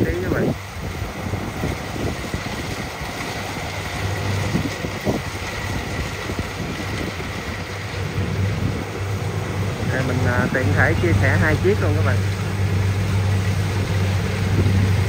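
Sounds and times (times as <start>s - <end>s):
diesel engine running: 0.0s - 15.0s
wind buffeting microphone: 0.0s - 15.0s.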